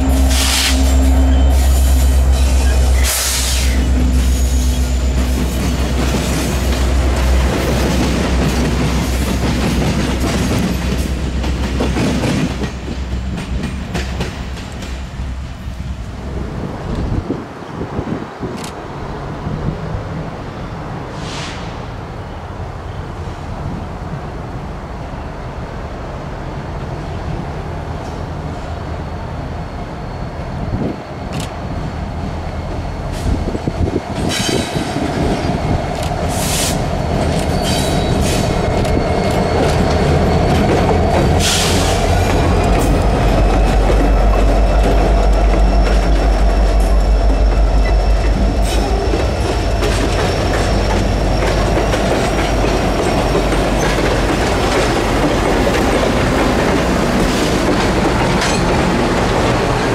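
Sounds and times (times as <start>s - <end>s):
diesel locomotive rumble: 0.0s - 17.6s, 18.2s - 59.9s
thin high wheel squeal: 36.3s - 42.2s, 42.9s - 55.0s.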